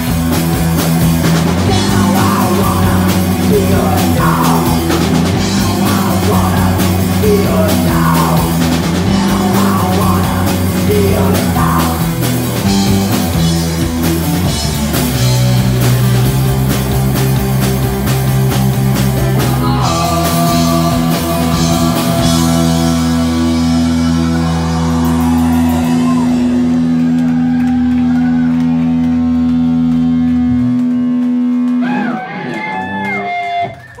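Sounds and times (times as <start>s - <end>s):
drum kit: 0.0s - 34.0s
live rock band playing: 0.0s - 34.0s
people whooping: 21.4s - 34.0s.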